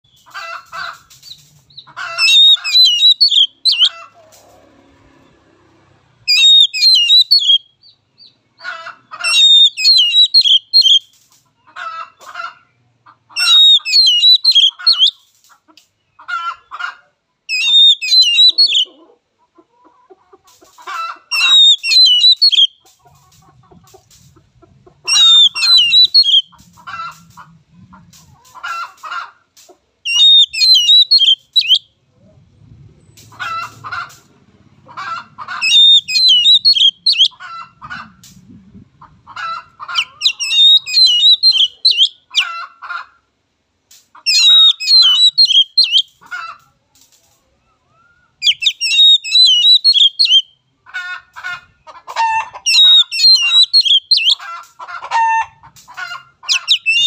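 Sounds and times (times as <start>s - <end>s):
bird singing whistled phrases: 2.2s - 3.9s, 6.3s - 7.7s, 9.3s - 11.0s, 13.4s - 15.2s, 17.5s - 18.9s, 21.4s - 22.8s, 25.1s - 26.5s, 30.1s - 31.8s, 35.6s - 37.3s, 40.2s - 42.2s, 44.3s - 46.1s, 48.4s - 50.5s, 52.7s - 54.4s, 56.5s - 57.0s.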